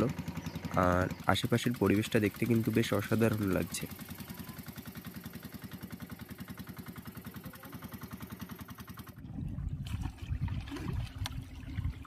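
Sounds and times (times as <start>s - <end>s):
boat engine thudding: 0.0s - 12.0s
water splashing: 8.8s - 12.0s.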